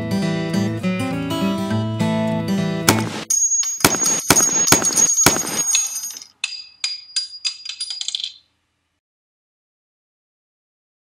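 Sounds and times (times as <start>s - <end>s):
gunshots with metallic ring: 2.9s - 6.2s.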